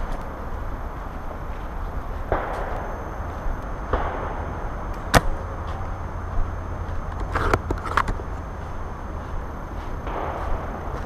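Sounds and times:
steady low rumble: 0:00.0 - 0:11.0
airsoft rifle shot: 0:03.9 - 0:05.4.

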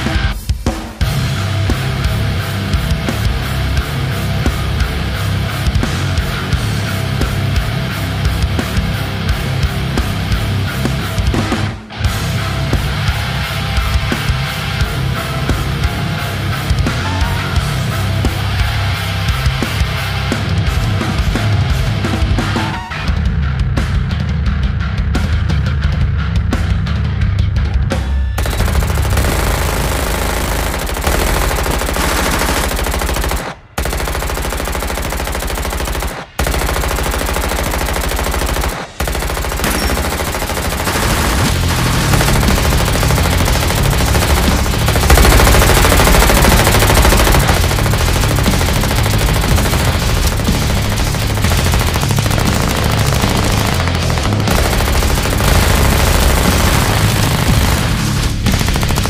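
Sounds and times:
machine guns firing: 0:28.4 - 0:59.0.

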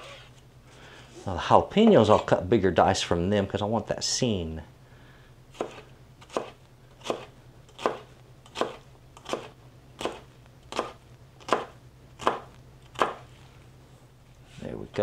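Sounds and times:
knife chopping on plastic board: 0:05.6 - 0:13.2.

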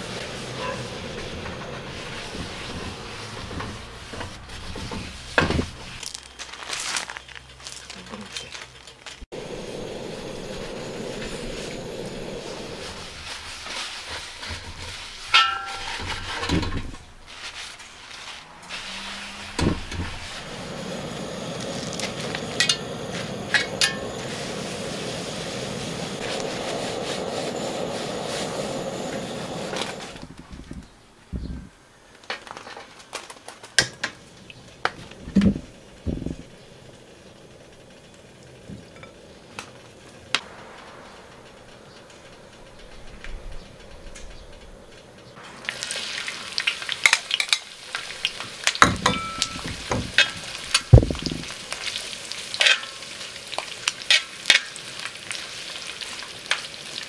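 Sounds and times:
gas burner hissing: 0:00.0 - 0:06.1, 0:09.2 - 0:31.5, 0:33.7 - 0:57.0
metal tongs scraping on griddle: 0:13.6 - 0:20.4, 0:52.6 - 0:53.0.

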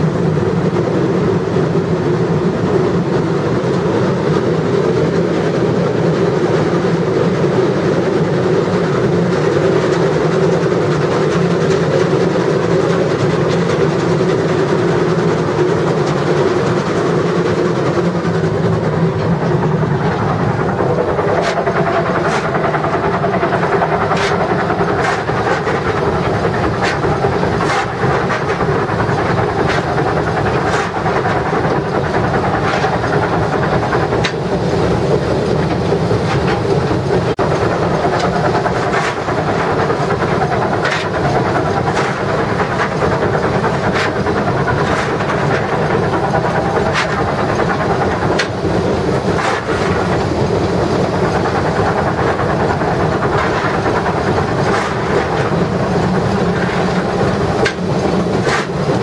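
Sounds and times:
steam locomotive rumble and hiss: 0:00.0 - 0:59.0
sharp clicks and knocks: 0:17.9 - 0:59.0.

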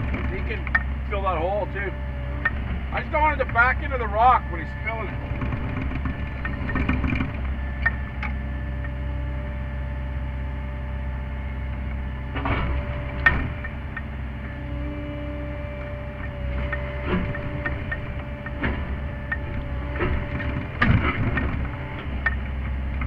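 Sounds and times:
excavator diesel engine running: 0:00.0 - 0:23.0.

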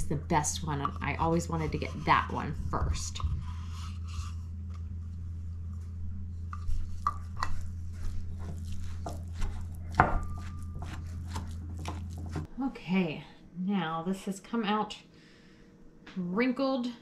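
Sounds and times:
wooden spoon scraping and stirring: 0:00.0 - 0:12.5
low hum: 0:00.0 - 0:16.8.

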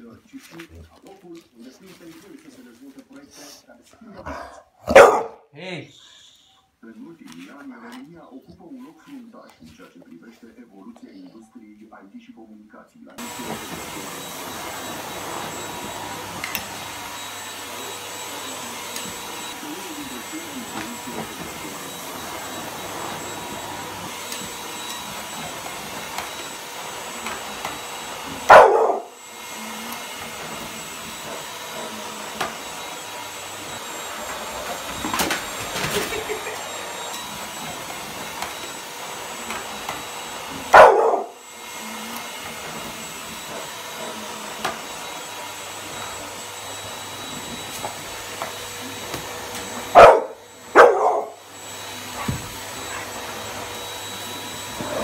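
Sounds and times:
dog barking loudly: 0:04.8 - 0:05.4, 0:28.4 - 0:29.2, 0:40.7 - 0:41.4, 0:49.9 - 0:51.4
vacuum cleaner whining: 0:13.2 - 0:55.0.

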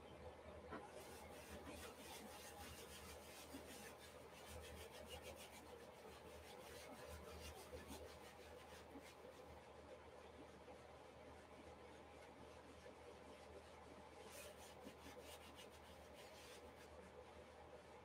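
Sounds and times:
paint scrubbed onto canvas: 0:01.0 - 0:09.5, 0:14.2 - 0:17.0.

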